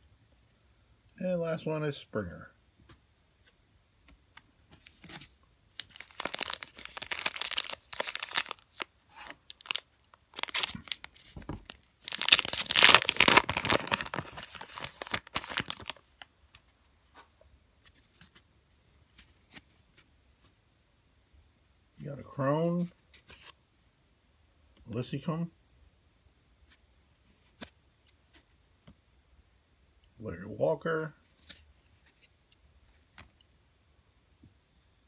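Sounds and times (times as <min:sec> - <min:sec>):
foil wrapper tearing and crinkling: 0:05.8 - 0:16.1.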